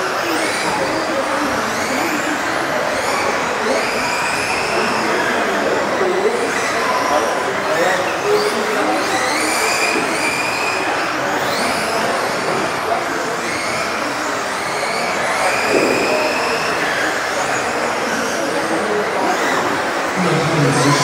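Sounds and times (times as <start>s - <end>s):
electric rc car motors whining: 0.0s - 20.2s
steady rushing noise: 15.6s - 18.0s.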